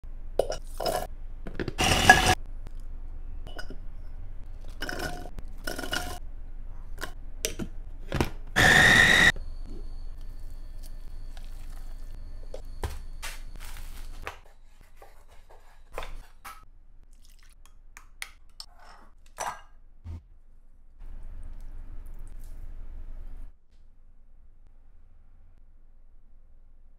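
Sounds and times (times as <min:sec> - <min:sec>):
food chopper motor whine: 0:01.8 - 0:02.4, 0:08.6 - 0:09.3
utensils scraping bowls: 0:01.8 - 0:02.4.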